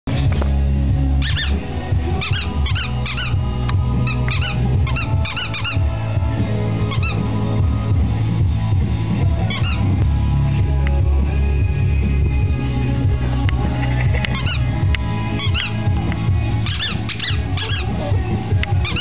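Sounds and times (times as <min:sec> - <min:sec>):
music: 0:00.0 - 0:19.0
squeaky dog toy squeaking: 0:01.2 - 0:01.6, 0:02.2 - 0:03.4, 0:04.0 - 0:06.0, 0:06.9 - 0:07.2, 0:09.4 - 0:09.9, 0:14.3 - 0:14.7, 0:15.4 - 0:15.8, 0:16.6 - 0:18.0.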